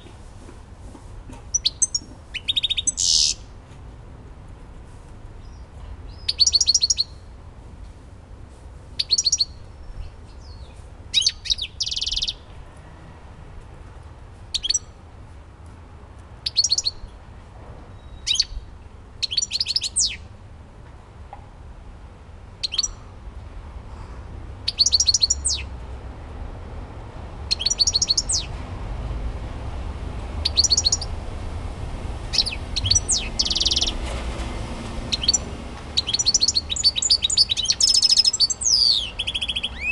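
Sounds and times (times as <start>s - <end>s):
bird twittering: 1.5s - 3.4s, 5.4s - 7.2s, 9.0s - 9.6s, 11.2s - 12.4s, 14.5s - 14.8s, 16.4s - 17.0s, 18.0s - 18.6s, 19.2s - 20.2s, 22.6s - 23.0s, 24.7s - 25.7s, 27.5s - 28.5s, 30.4s - 31.1s, 32.3s - 34.0s, 35.1s - 39.9s.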